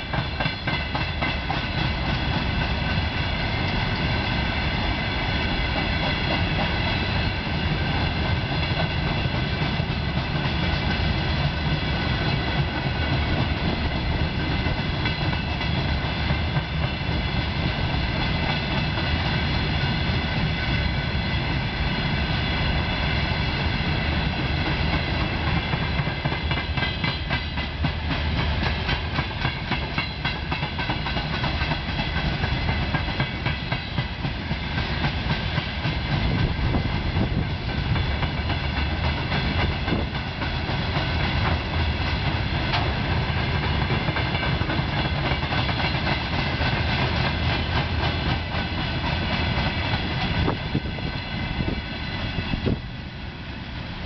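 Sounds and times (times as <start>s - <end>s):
freight train rumbling past: 0.0s - 54.0s
wheels clattering over rail joints: 24.9s - 51.8s.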